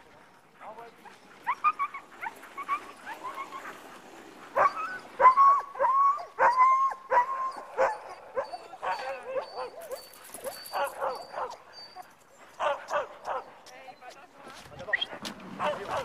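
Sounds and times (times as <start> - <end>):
dogs yipping and barking: 0.9 - 14.1, 14.8 - 16.0
dogs whining: 1.0 - 3.8, 4.6 - 13.5.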